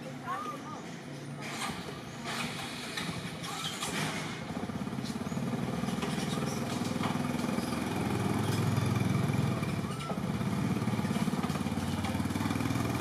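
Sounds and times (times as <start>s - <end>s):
small engine running: 1.4s - 13.0s.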